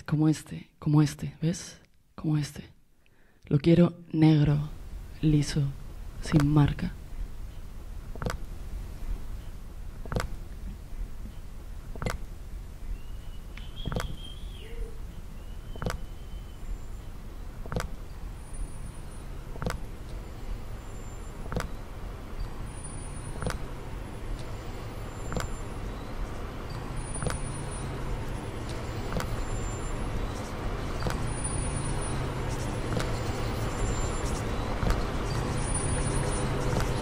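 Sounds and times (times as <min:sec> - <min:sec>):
low rumbling electronic drone: 0:04.6 - 0:37.0
sharp electronic clicks: 0:08.1 - 0:08.5, 0:10.0 - 0:10.4, 0:11.9 - 0:12.3, 0:13.5 - 0:14.5, 0:15.6 - 0:16.8, 0:17.5 - 0:37.0.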